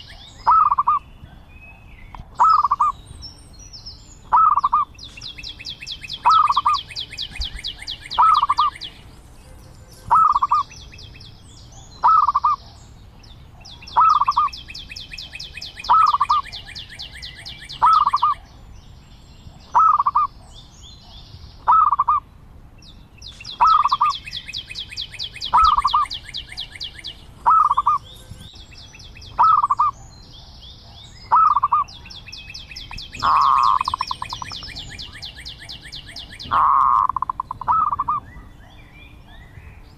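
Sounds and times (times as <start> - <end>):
dove calling: 0.0 - 18.6, 19.5 - 22.3, 23.2 - 39.9
high rapid bird trilling: 0.0 - 18.6, 19.5 - 22.3, 22.9 - 39.9.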